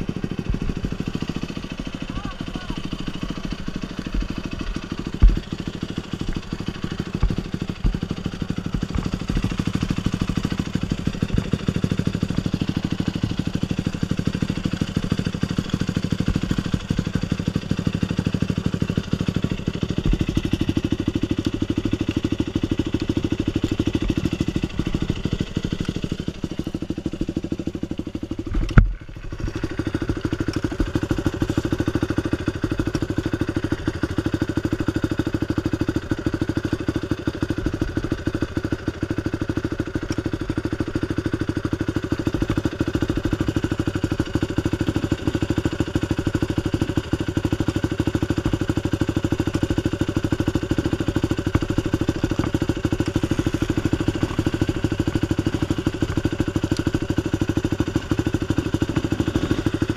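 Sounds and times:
dirt bike engine idling: 0.0s - 59.9s
short thump: 5.2s - 5.7s.

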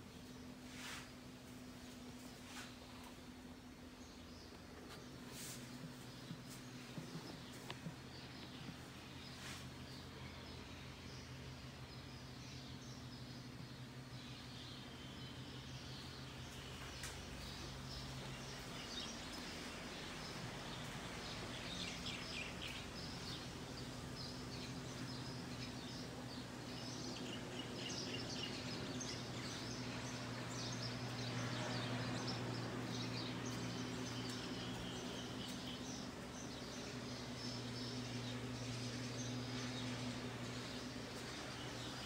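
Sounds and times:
birds chirping: 0.0s - 42.0s
steady low hum: 0.0s - 42.0s.

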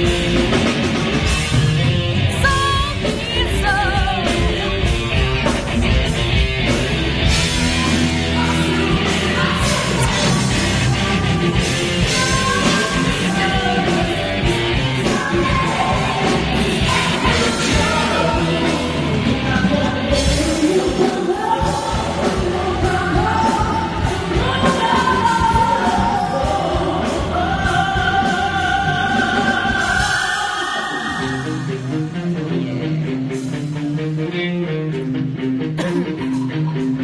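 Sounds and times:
live band playing: 0.0s - 37.0s
woman singing through microphone: 2.3s - 4.7s, 7.8s - 31.8s.

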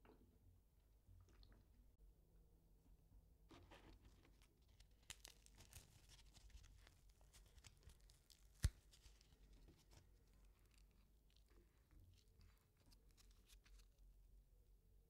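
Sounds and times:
faint crackling and rustling: 3.4s - 14.4s.

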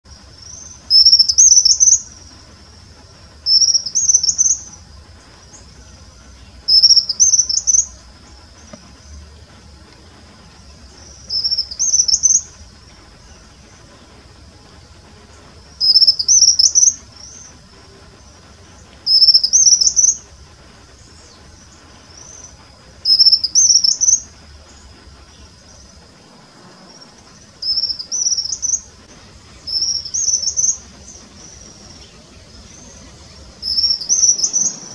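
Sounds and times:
bird singing high phrases: 0.1s - 2.3s, 3.4s - 9.3s, 10.4s - 14.1s, 15.3s - 17.6s, 18.2s - 20.3s, 20.9s - 26.0s, 27.0s - 34.9s.

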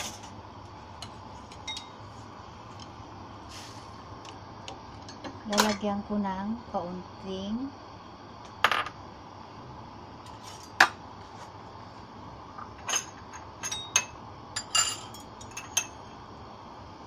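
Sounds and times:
gas burner hiss: 0.0s - 17.0s
spoon clinking on glassware: 12.8s - 16.0s.

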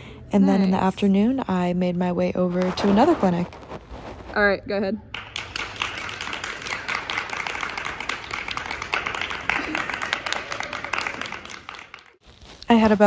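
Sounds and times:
people applauding: 5.1s - 12.2s.

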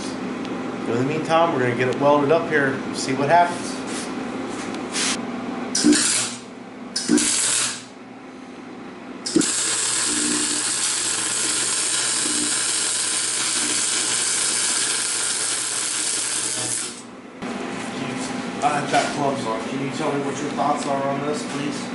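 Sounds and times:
arc welding crackling sizzle: 5.8s - 7.9s, 9.3s - 17.1s.

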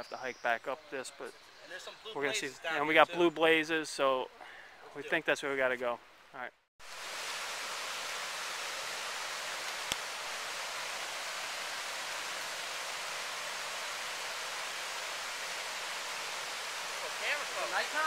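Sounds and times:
water rushing over rocks: 6.8s - 18.0s.

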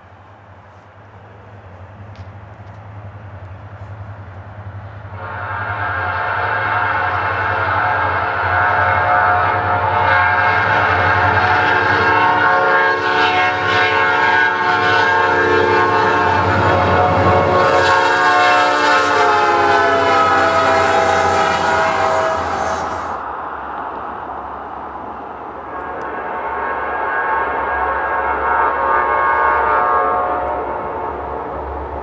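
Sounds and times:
locomotive engine rumble: 0.0s - 6.0s, 15.5s - 23.3s
train rumble: 0.0s - 32.0s
locomotive horn chord: 5.2s - 23.2s, 25.7s - 31.3s.

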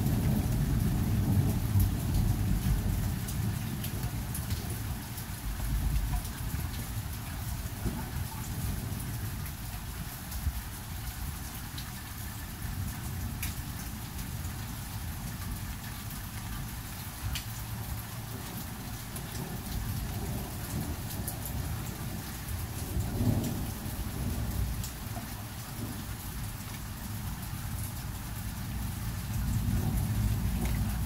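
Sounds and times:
steady rain falling: 0.0s - 31.0s
thunder rumbling: 19.2s - 26.2s, 28.7s - 31.0s.

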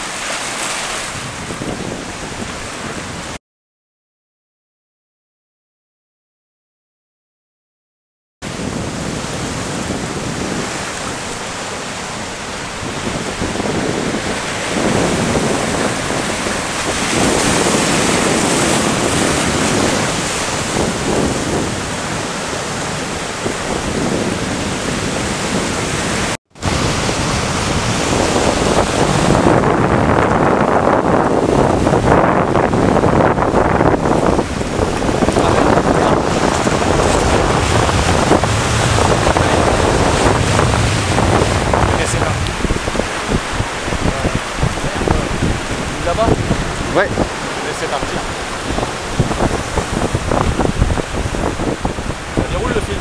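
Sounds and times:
surf breaking over rocks: 0.0s - 3.4s, 8.4s - 53.0s
wind buffeting microphone: 0.0s - 3.4s, 8.4s - 53.0s.

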